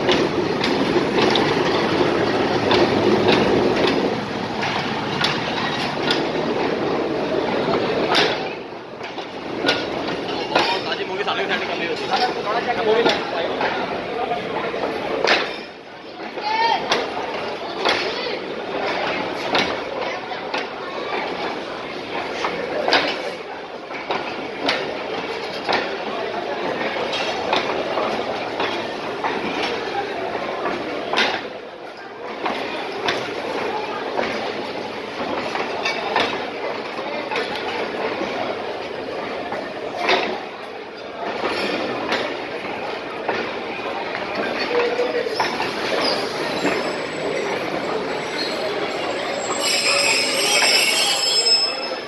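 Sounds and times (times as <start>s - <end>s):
train coaches rumbling past: 0.0s - 52.0s
wheel clacks over rail joints: 0.0s - 52.0s
high-pitched wheel squeal: 46.0s - 52.0s.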